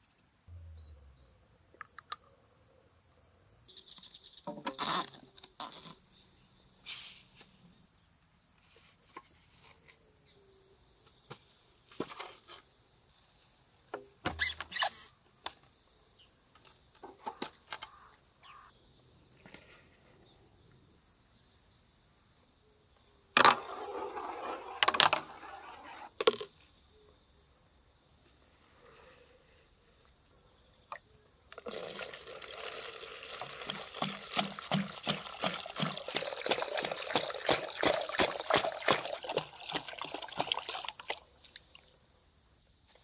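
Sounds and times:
ball rolling down plastic tube: 23.4 - 26.5.

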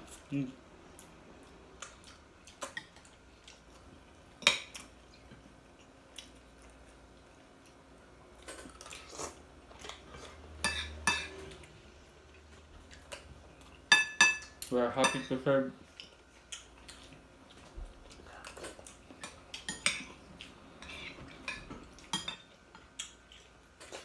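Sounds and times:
cutlery clinking on ceramic plates: 20.8 - 22.5.

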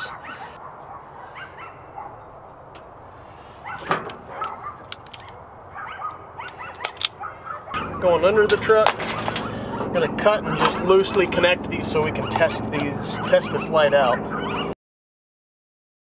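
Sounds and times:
dog bark: 0.0 - 2.2, 3.6 - 4.9, 5.7 - 8.1, 13.1 - 14.8
steady background hum: 0.0 - 14.7
hand tools and wire clicking: 3.7 - 7.3, 8.4 - 9.5, 12.3 - 13.0.

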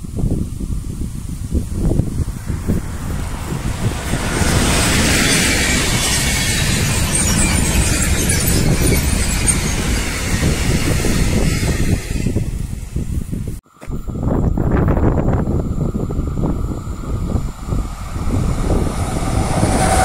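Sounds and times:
train wheels rumbling on rail: 0.0 - 20.0
high squeaks: 3.6 - 12.6.

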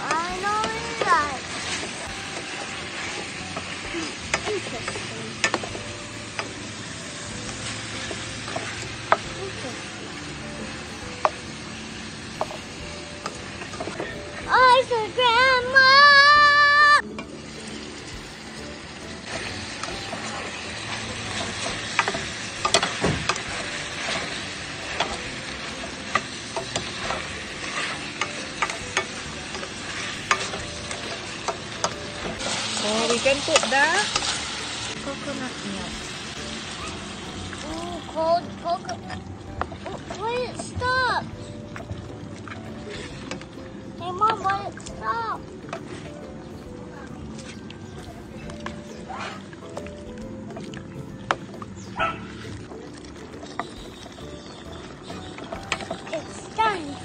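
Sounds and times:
meat sizzling in a pot: 0.0 - 57.0
ladle clicking against pot: 21.4 - 24.4.

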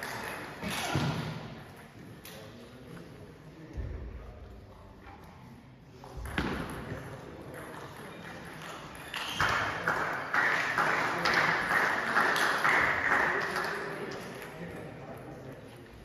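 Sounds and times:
table tennis ball bouncing: 6.2 - 10.1.

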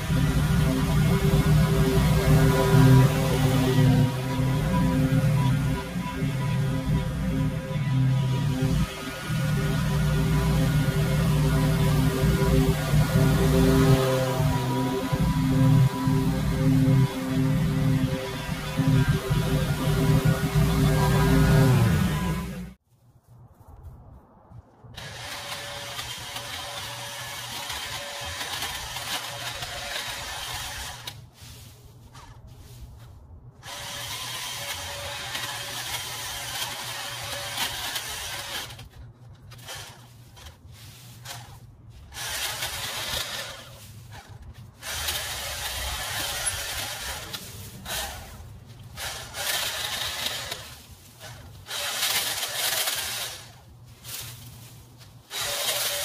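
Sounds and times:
power trimmer cutting bush: 0.0 - 22.8, 25.0 - 31.2, 33.6 - 56.0
steady low hum: 0.0 - 22.8.

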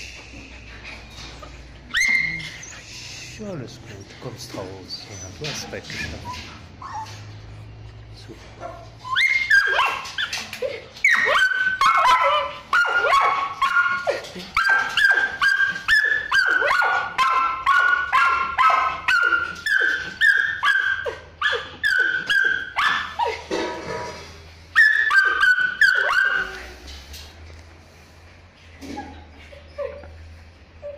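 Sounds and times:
dogs barking and yelping: 0.0 - 3.2, 4.5 - 27.3, 28.7 - 30.9.

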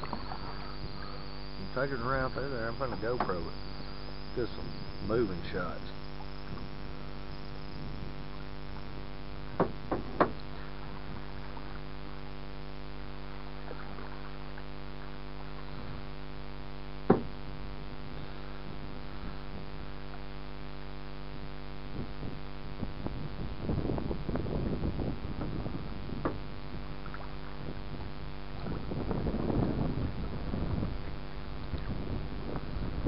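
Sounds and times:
water splashing: 0.0 - 3.5
steady electric hum: 0.0 - 33.0
sharp knocks: 9.6 - 10.4, 17.1 - 17.3.

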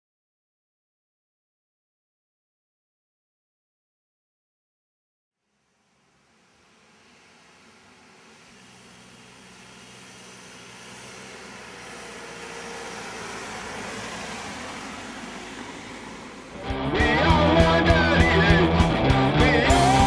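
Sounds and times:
car driving past: 5.4 - 20.0.

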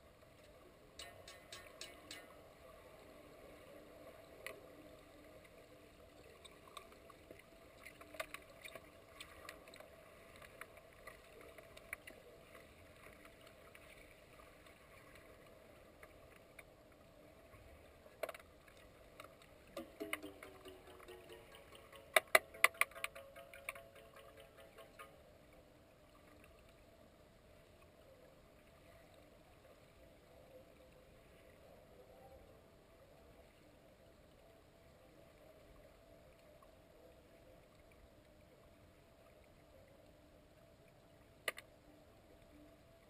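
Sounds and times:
underwater hum: 0.0 - 43.0
faint clicks and knocks: 0.2 - 2.4, 6.3 - 15.3, 18.1 - 25.3, 41.4 - 41.8.

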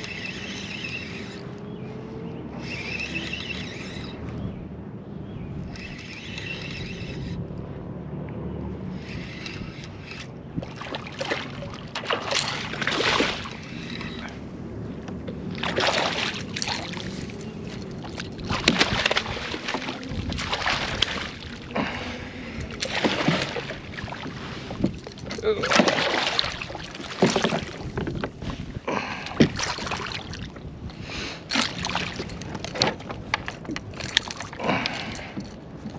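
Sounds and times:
fish thrashing and splashing water: 10.6 - 14.3, 15.4 - 30.6, 31.5 - 35.9.

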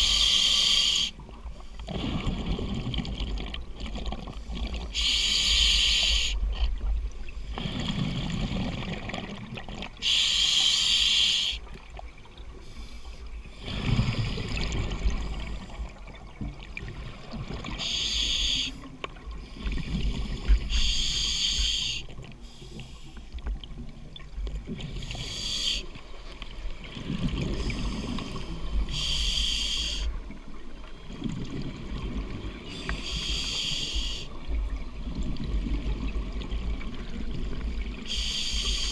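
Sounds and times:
regulator hissing inhalations: 0.0 - 1.2, 5.0 - 6.4, 10.0 - 11.6, 17.8 - 18.9, 20.7 - 23.3, 25.1 - 25.9, 28.9 - 30.2, 32.7 - 34.3, 38.1 - 38.9.

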